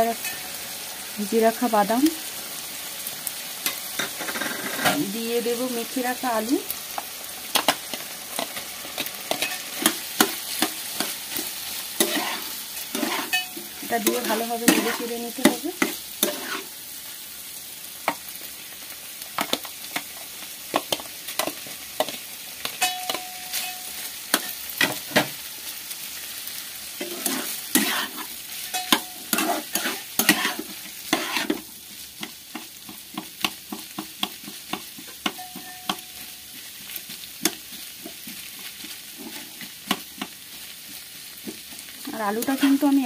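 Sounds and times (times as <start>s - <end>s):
food sizzling in a pan: 0.0s - 43.0s
spatula scraping a frying pan: 3.6s - 5.1s, 7.5s - 16.8s, 26.9s - 43.0s.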